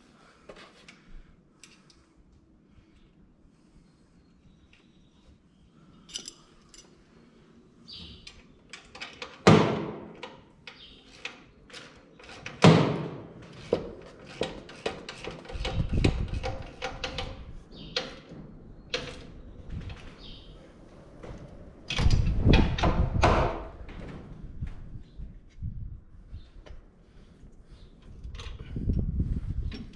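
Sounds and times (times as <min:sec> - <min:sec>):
clicks and clunks of parts handled: 0:06.0 - 0:06.9, 0:08.2 - 0:09.5.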